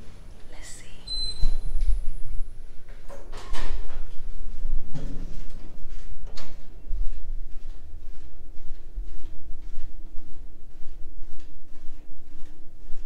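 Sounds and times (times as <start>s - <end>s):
short high beep: 1.0s - 1.7s.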